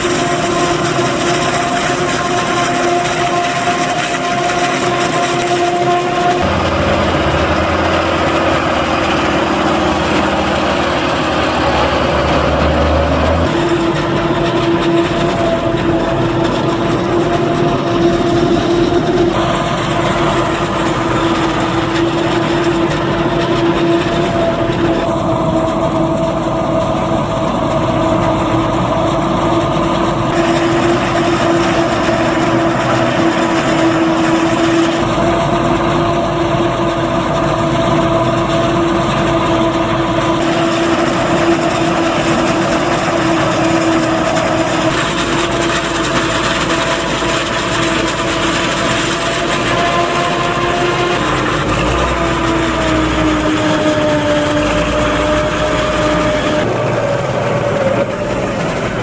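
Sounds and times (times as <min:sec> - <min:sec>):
forage harvester running: 0:00.0 - 0:59.0.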